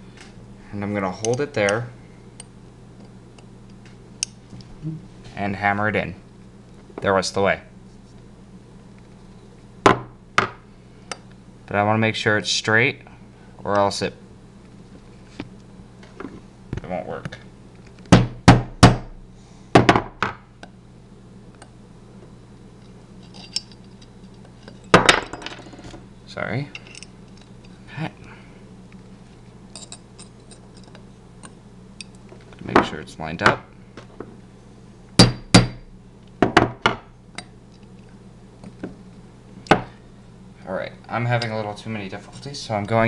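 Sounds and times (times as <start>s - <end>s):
hammer tapping metal punch: 35.2s - 35.8s.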